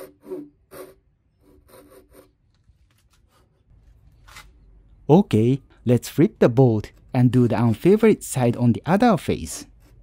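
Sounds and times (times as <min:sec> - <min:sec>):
hand saw rasping strokes: 0:00.0 - 0:02.3.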